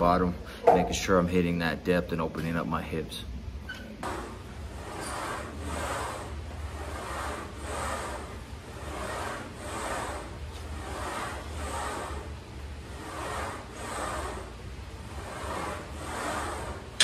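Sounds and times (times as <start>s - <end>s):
electric fan air whooshing: 0.0s - 17.0s.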